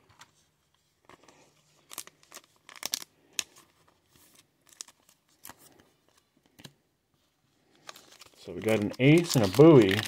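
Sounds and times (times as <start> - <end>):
plastic wrapping crinkling: 7.7 - 10.0.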